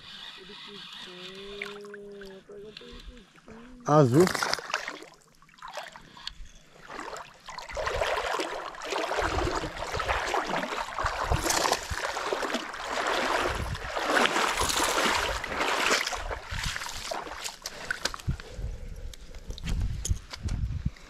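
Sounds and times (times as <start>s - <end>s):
water rushing and splashing: 6.8s - 18.2s.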